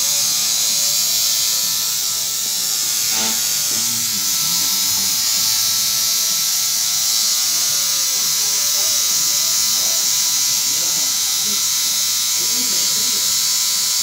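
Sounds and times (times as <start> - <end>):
tattoo machine buzzing: 0.0 - 14.0.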